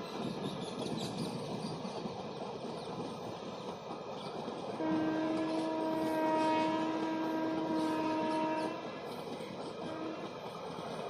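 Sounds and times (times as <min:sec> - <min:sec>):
train rumbling past: 0:00.0 - 0:11.0
train horn blast: 0:04.8 - 0:08.9, 0:09.8 - 0:10.3.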